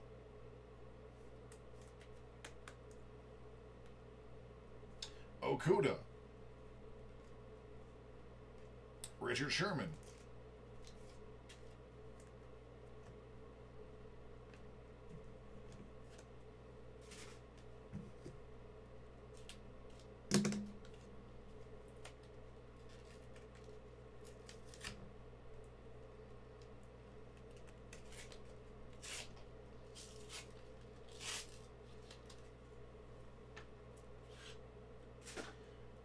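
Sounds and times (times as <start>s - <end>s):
faint steady hum: 0.0s - 36.0s.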